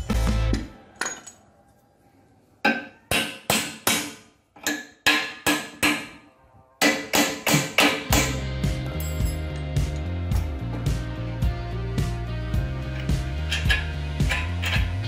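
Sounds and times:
background music: 0:00.0 - 0:01.3, 0:05.6 - 0:15.0
hammer striking metal: 0:02.6 - 0:06.2, 0:06.8 - 0:10.0.

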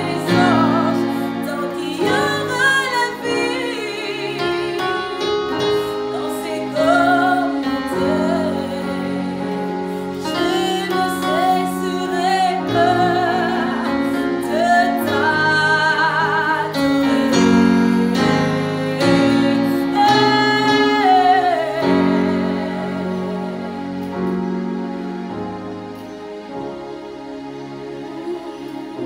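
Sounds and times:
woman singing gospel song: 0:00.0 - 0:23.9
electronic keyboard chords: 0:00.0 - 0:29.0.

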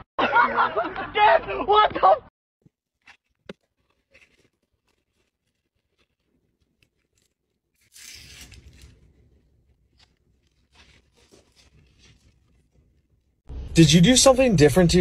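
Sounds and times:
paper rustling: 0:02.6 - 0:13.4.

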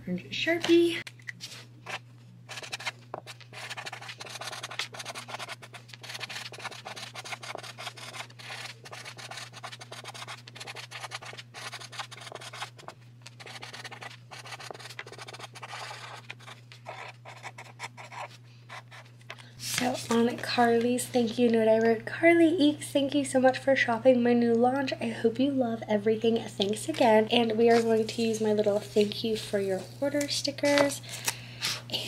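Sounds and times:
marker scratching on card: 0:01.9 - 0:19.0.

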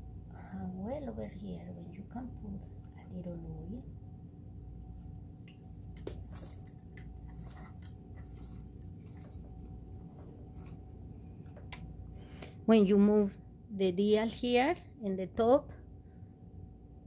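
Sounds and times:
steady low hum: 0:00.0 - 0:17.0
faint clicks and handling sounds: 0:05.4 - 0:12.5.

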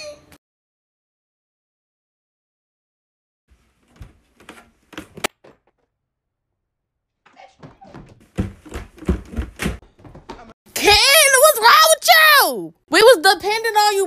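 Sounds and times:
footsteps on wooden stairs: 0:03.8 - 0:05.8, 0:07.3 - 0:10.6.

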